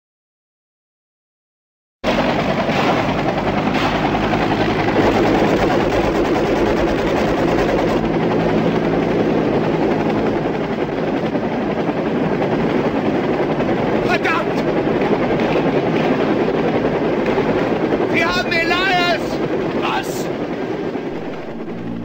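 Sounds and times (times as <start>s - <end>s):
helicopter rotor and turbine: 2.0s - 22.0s
sharp cracks: 2.6s - 4.5s.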